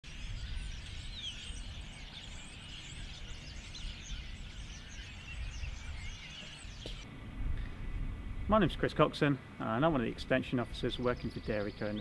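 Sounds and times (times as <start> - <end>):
starlings chirping and whistling: 0.1 - 7.0, 10.8 - 12.0.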